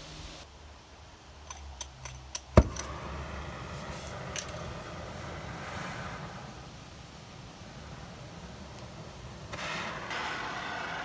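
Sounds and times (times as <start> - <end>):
flint striker clicking: 1.4 - 2.9
gas igniting with a pop: 2.5 - 5.2, 9.5 - 10.6
torch flame hissing: 2.5 - 11.0.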